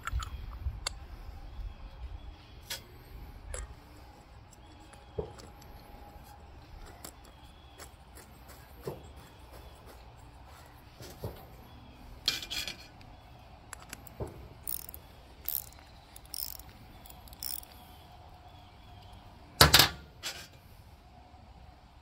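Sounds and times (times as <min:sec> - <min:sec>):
small metal clicks and clinks: 0:13.7 - 0:17.8.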